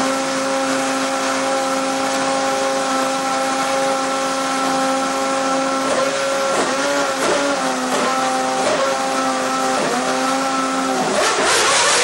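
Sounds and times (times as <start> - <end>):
racing engine high-pitched whine: 0.0 - 12.0.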